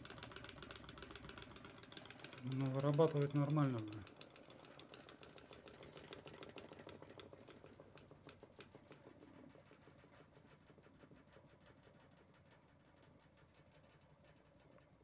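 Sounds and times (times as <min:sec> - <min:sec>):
rotor disc spinning with rapid ticking: 0:00.0 - 0:15.0.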